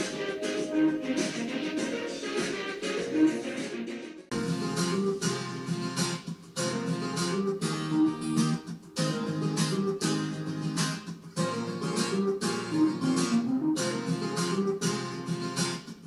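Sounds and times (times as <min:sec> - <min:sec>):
acoustic guitar strumming chords: 0:04.3 - 0:16.0.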